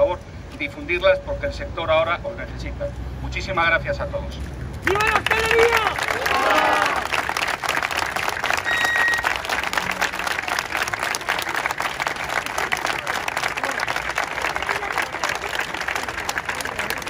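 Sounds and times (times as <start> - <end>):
crowd applauding: 4.8 - 17.0
short high tone: 8.6 - 9.4.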